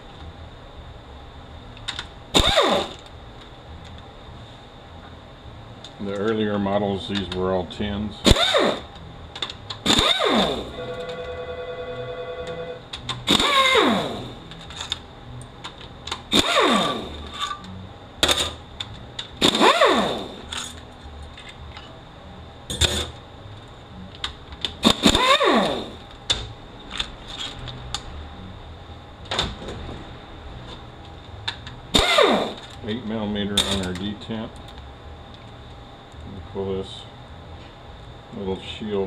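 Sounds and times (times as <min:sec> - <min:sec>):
power driver whining: 0:02.3 - 0:03.1, 0:08.2 - 0:09.0, 0:09.8 - 0:15.0, 0:16.1 - 0:17.8, 0:19.4 - 0:20.8, 0:24.8 - 0:26.1, 0:31.4 - 0:32.8.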